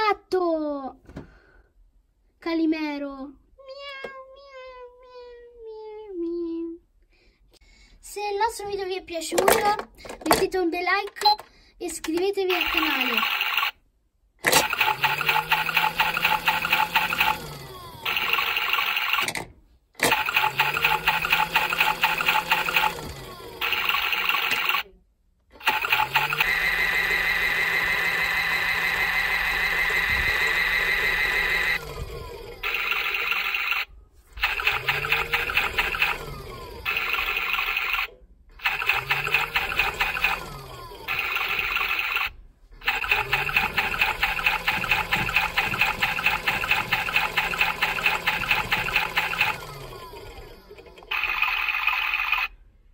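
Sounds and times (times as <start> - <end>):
toy washing machine motor whine: 12.5 - 13.8, 14.4 - 19.4, 20.0 - 24.9, 25.6 - 52.6.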